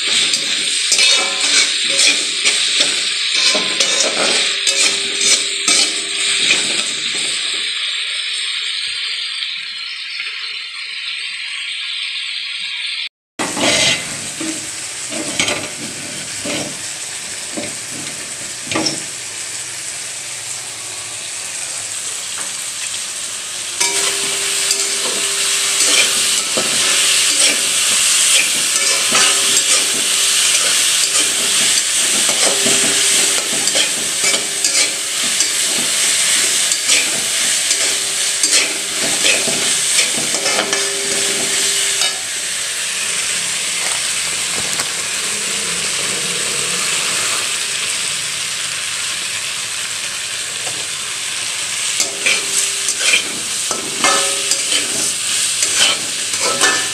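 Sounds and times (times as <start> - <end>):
spatula scraping a pan: 0.0 - 7.6, 13.4 - 19.1, 23.8 - 42.4, 52.0 - 56.9
vegetables sizzling in a wok: 0.0 - 56.9.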